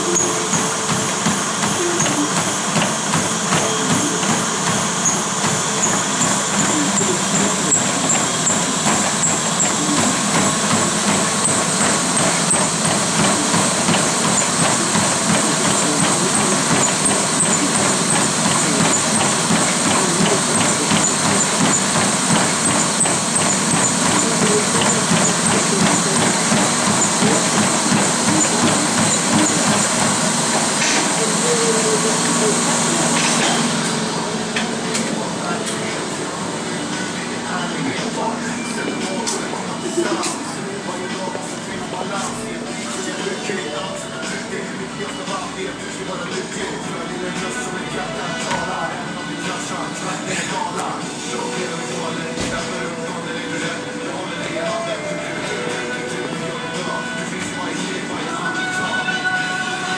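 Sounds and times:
treadmill whir: 0.0s - 59.9s
footfalls on treadmill belt: 0.1s - 33.7s.

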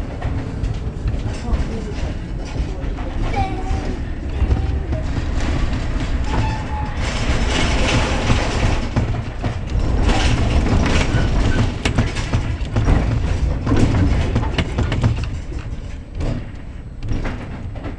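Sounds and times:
tram wheels rumbling on rails: 0.0s - 17.9s.

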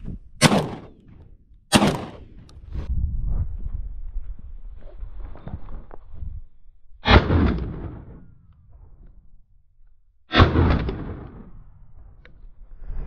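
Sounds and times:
shotgun shots with echo: 0.4s - 1.1s, 1.7s - 2.3s, 10.3s - 11.5s.

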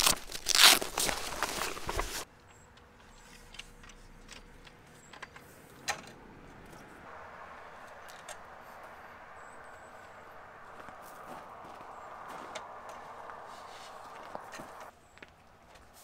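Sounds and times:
awning poles clicking and knocking: 1.9s - 6.9s, 12.2s - 14.9s
soft steady rush: 7.0s - 14.9s.

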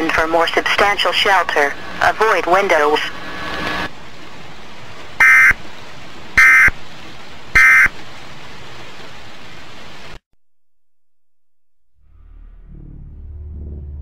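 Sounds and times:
radio hiss: 0.0s - 3.9s.

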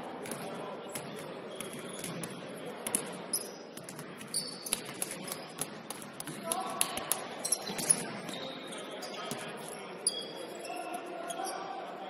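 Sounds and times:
sneaker squeaks: 1.0s - 5.7s, 7.4s - 11.7s.

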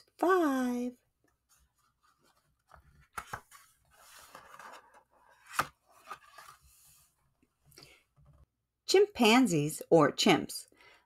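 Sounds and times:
page turning rustle: 1.9s - 6.9s.

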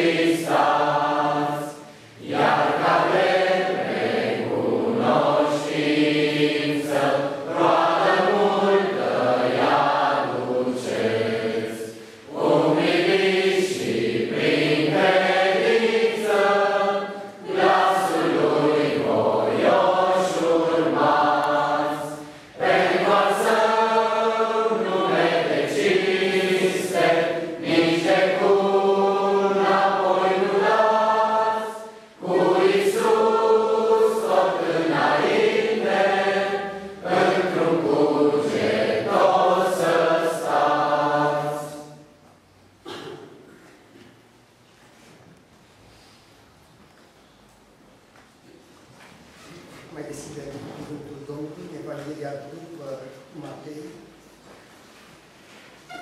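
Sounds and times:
congregation singing a hymn: 0.0s - 44.2s.

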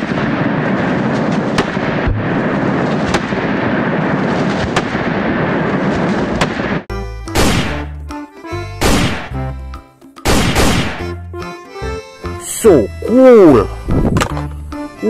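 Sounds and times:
handgun shots: 7.3s - 7.9s, 8.8s - 9.4s, 10.2s - 11.1s.

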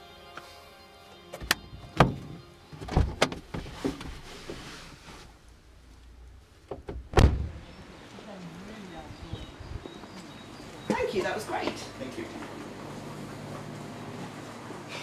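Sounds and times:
car door clunks and knocks: 1.4s - 3.8s, 6.7s - 7.6s
car door shutting: 1.4s - 4.6s, 6.7s - 7.7s.

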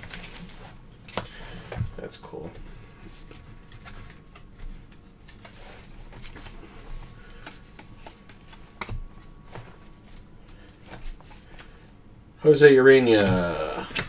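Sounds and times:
cards clicking and tapping: 3.3s - 11.8s.

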